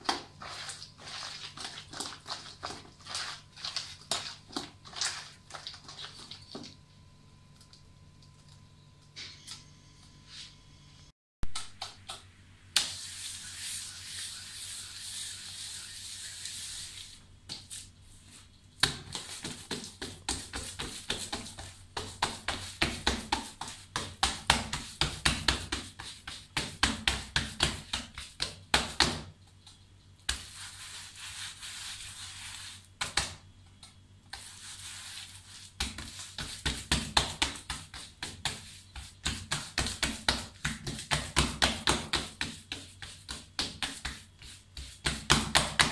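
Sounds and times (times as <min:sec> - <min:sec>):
hands slapping dough: 0:00.0 - 0:06.8, 0:11.4 - 0:13.1, 0:18.8 - 0:29.4, 0:30.2 - 0:45.9
soft rubbing: 0:13.0 - 0:18.5, 0:30.3 - 0:32.9, 0:34.3 - 0:36.6.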